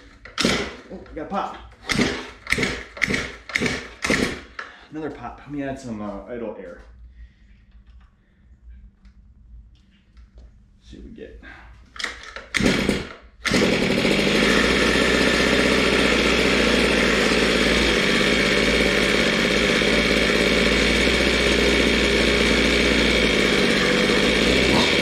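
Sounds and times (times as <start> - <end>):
small two-stroke engine idling: 0.0 - 0.9, 1.8 - 4.8, 12.6 - 25.0.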